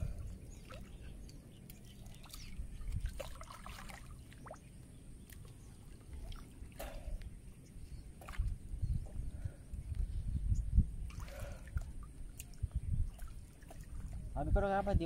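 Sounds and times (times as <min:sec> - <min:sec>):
steady low rumble: 0:00.0 - 0:03.2
water sloshing and splashing: 0:00.0 - 0:07.3, 0:08.1 - 0:08.8, 0:11.0 - 0:14.4.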